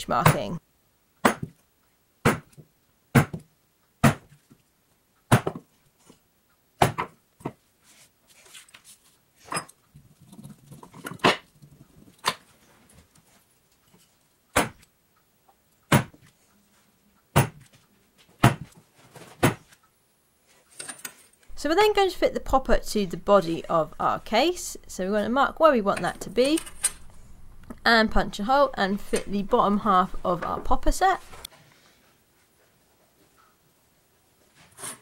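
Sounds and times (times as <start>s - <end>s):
faint handling rustle: 7.6s - 14.4s.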